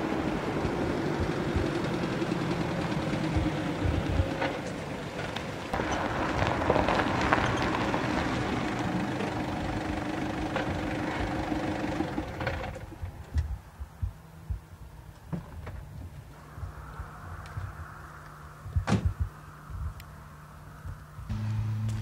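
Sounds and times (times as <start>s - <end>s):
car engine hum: 0.0s - 22.0s
road noise: 0.0s - 22.0s
low thumps: 13.0s - 18.0s, 18.6s - 20.0s.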